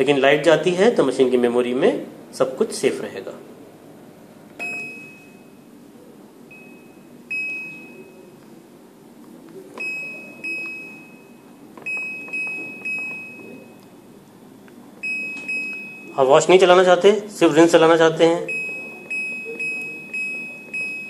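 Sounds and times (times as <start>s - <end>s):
washing machine control panel beeps: 4.6s - 5.7s, 6.4s - 8.4s, 9.7s - 13.9s, 15.0s - 16.6s, 18.4s - 21.0s.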